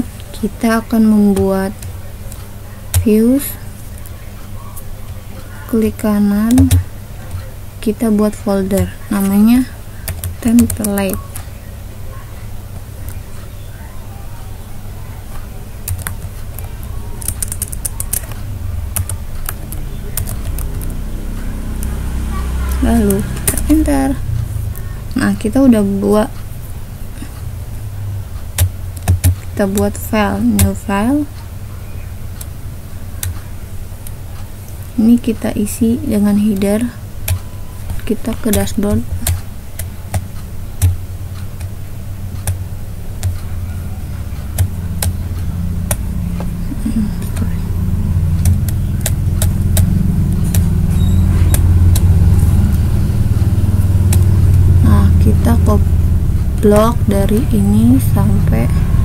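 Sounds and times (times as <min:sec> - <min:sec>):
steady low hum: 0:00.0 - 0:59.0
keyboard keys clicking: 0:05.8 - 0:07.4, 0:08.2 - 0:11.5, 0:15.3 - 0:22.0, 0:28.4 - 0:30.8, 0:36.5 - 0:41.8, 0:43.2 - 0:43.5, 0:44.1 - 0:47.6, 0:48.3 - 0:52.9.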